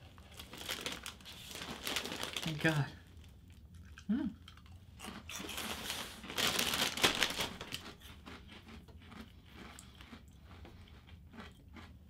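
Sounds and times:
plastic bag crinkling: 0.0 - 3.3, 5.3 - 8.0
crunchy snack chewing: 3.5 - 12.0.

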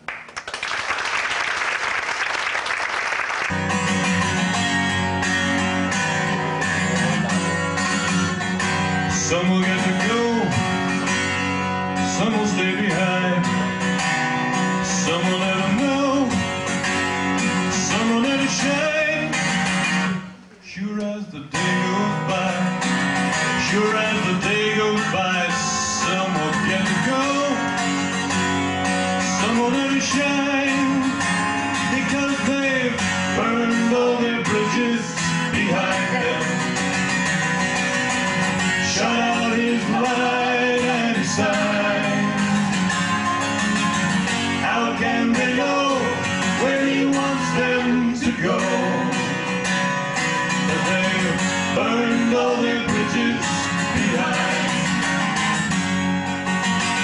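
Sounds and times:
people clapping: 0.0 - 5.6
acoustic guitar strumming: 3.4 - 57.0
man singing: 9.0 - 10.8, 11.9 - 13.9, 14.7 - 16.5, 17.6 - 19.5, 20.6 - 27.8, 29.2 - 37.1, 38.7 - 42.8, 44.5 - 49.7, 50.4 - 55.4.

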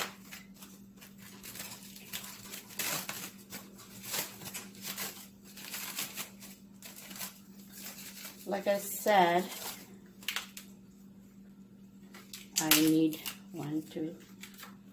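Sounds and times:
plastic bag crinkling: 0.0 - 10.7
faint steady hum: 0.0 - 14.9.

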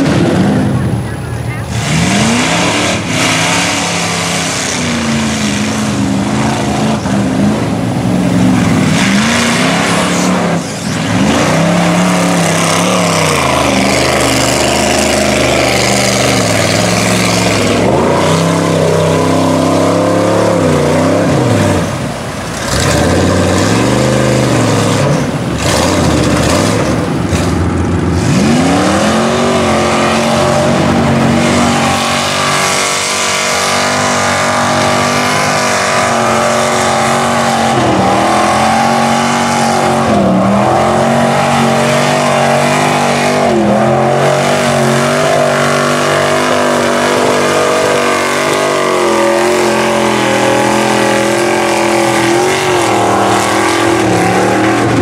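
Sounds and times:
truck engines revving: 0.0 - 55.0.

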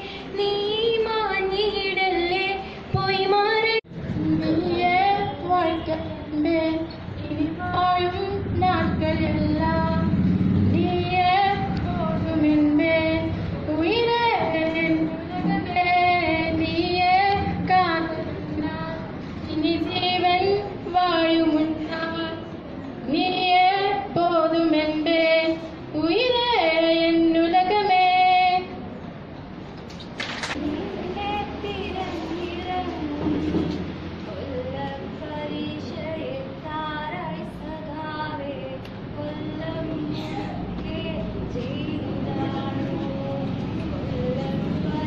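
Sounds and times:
girl singing unaccompanied: 0.0 - 28.9, 30.6 - 45.0.

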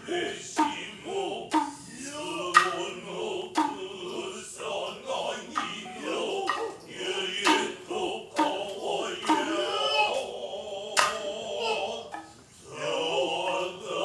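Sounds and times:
drummers' drawn-out calls: 0.0 - 4.7, 5.4 - 10.2
hand drum strokes: 1.5 - 2.9, 3.5 - 4.0, 5.5 - 10.1
high sustained flute: 5.6 - 6.9.

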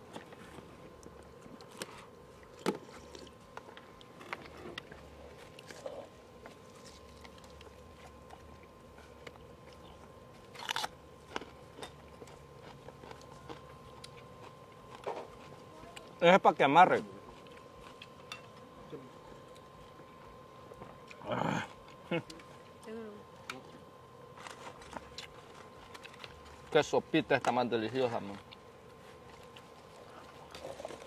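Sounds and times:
person chewing and sipping: 0.0 - 16.2, 17.2 - 18.7, 24.4 - 26.7, 28.3 - 31.0.

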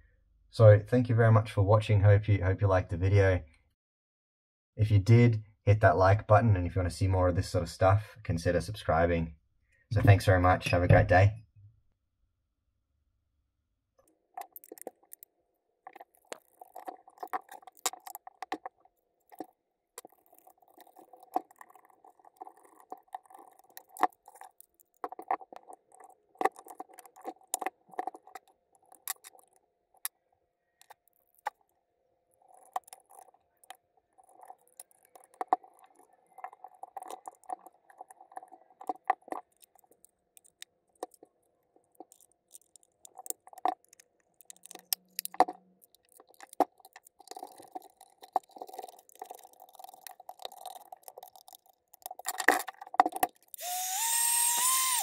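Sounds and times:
plastic parts and screws clicking: 14.0 - 55.0.

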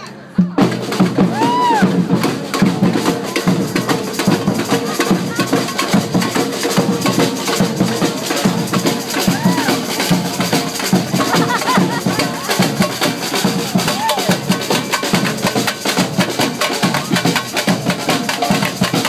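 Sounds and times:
crowd voices: 0.0 - 19.0
street drumming: 0.0 - 19.0.

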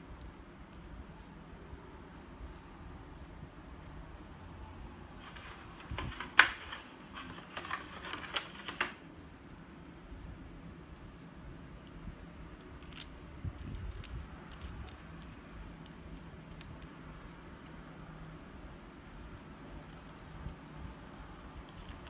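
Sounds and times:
plastic parts and packaging clicking: 5.2 - 9.0.

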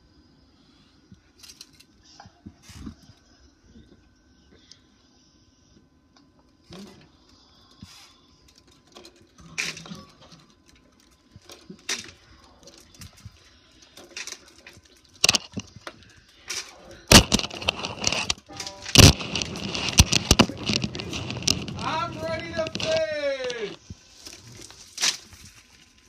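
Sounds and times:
wooden bead curtain clacking: 17.1 - 23.8.

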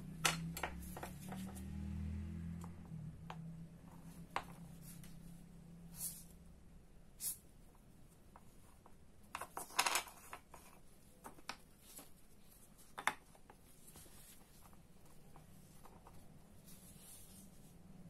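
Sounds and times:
faint handling noise: 7.7 - 18.0
small parts clicking on wooden table: 8.4 - 11.6.

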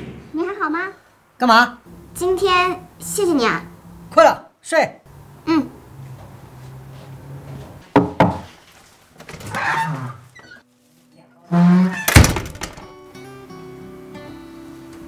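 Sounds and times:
door shutting with a thud: 11.8 - 13.0
quiet guitar music: 12.8 - 15.0.

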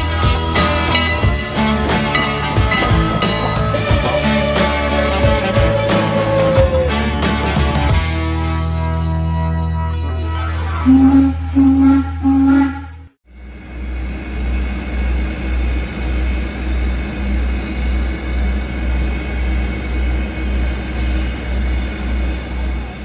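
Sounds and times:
low pulsing beat: 0.0 - 6.9
steam locomotive hissing: 0.0 - 7.7, 10.1 - 23.0
intro music notes: 10.0 - 13.1.

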